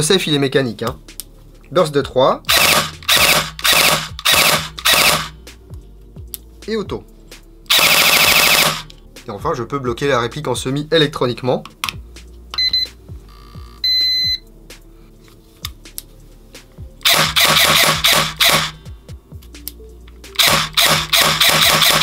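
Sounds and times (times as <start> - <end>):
electric gearbox firing shots: 2.5 - 5.4, 7.7 - 8.9, 17.0 - 18.8, 20.4 - 22.0
short electronic beeps: 12.6 - 14.4.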